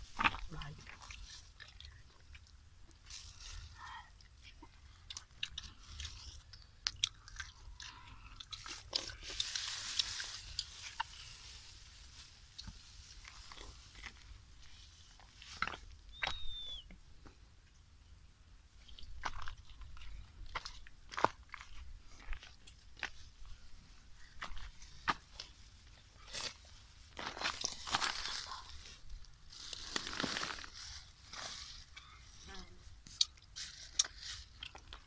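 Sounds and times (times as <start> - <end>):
plastic bag rustling: 8.6 - 14.1, 27.1 - 31.9.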